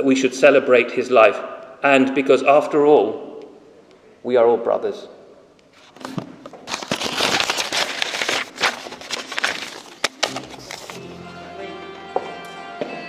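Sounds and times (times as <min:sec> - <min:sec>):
paper rustling into microphone: 0:05.7 - 0:11.0
music: 0:10.1 - 0:13.0.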